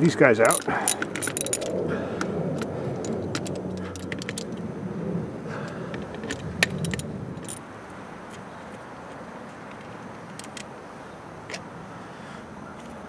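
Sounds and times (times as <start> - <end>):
socket ratchet clicking: 0.4 - 1.7, 6.2 - 7.6
small metal clinks: 0.4 - 1.8, 2.6 - 4.6, 6.1 - 7.6.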